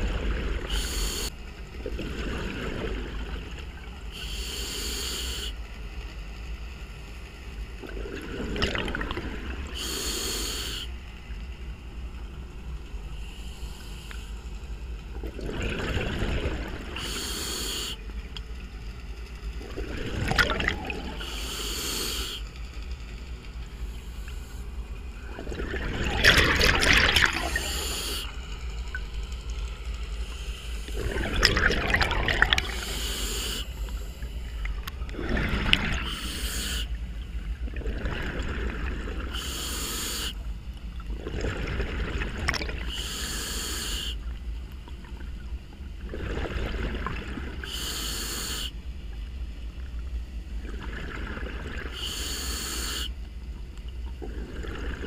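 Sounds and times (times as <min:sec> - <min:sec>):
regulator hissing inhalation: 0:00.7 - 0:01.3, 0:04.1 - 0:05.6, 0:09.8 - 0:10.9, 0:17.0 - 0:18.0, 0:21.2 - 0:22.4, 0:27.4 - 0:28.3, 0:32.6 - 0:34.3, 0:36.0 - 0:37.0, 0:39.3 - 0:40.4, 0:42.9 - 0:44.2, 0:47.6 - 0:48.8, 0:51.9 - 0:53.2
exhaled bubbles bursting: 0:07.8 - 0:09.4, 0:15.2 - 0:17.0, 0:19.8 - 0:21.2, 0:25.2 - 0:27.7, 0:30.9 - 0:32.9, 0:34.8 - 0:36.2, 0:41.1 - 0:42.9, 0:46.0 - 0:47.6, 0:50.6 - 0:52.0.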